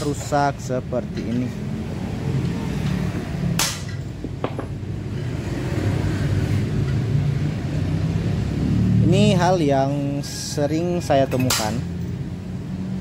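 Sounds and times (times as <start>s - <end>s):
light knocks on metal: 4.2s - 4.8s.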